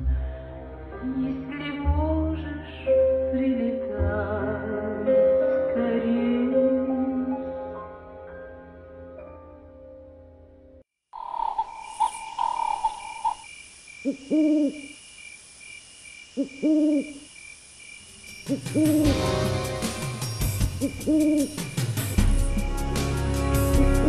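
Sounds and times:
background music: 0.0s - 10.8s, 18.5s - 24.0s
owl hooting: 11.2s - 15.4s, 16.1s - 17.5s, 18.3s - 19.2s, 20.2s - 21.8s.

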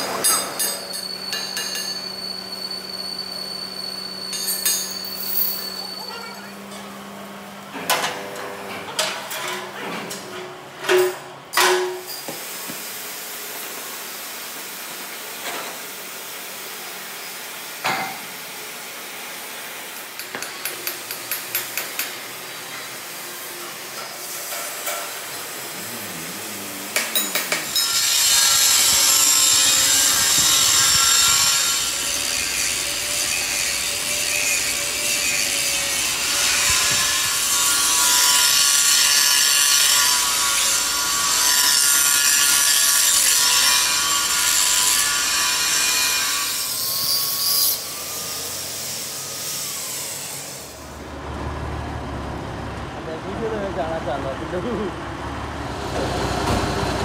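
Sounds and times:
power tool grinding metal: 19.8s - 51.0s.

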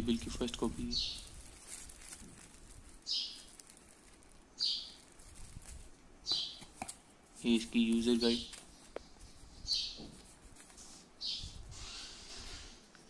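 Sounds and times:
plastic bag rustling: 0.0s - 12.9s
bird chirping high calls: 0.9s - 1.3s, 3.0s - 3.5s, 4.5s - 5.0s, 6.2s - 6.7s, 9.6s - 10.0s, 11.2s - 12.3s.

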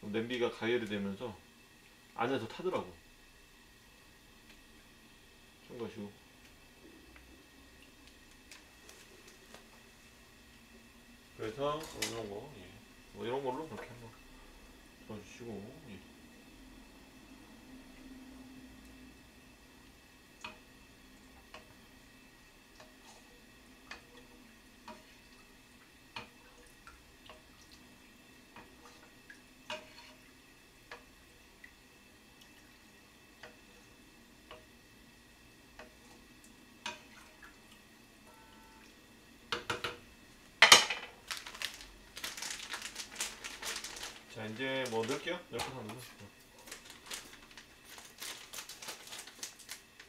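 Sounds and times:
wooden spoon stirring a pot: 22.8s - 31.6s
plastic package crinkling: 41.1s - 50.0s.

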